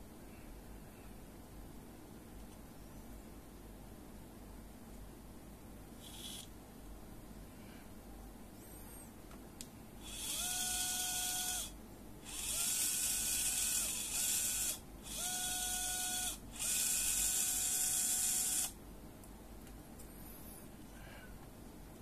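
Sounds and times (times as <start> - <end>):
gearmotor whirring: 6.0 - 6.5, 10.0 - 18.8.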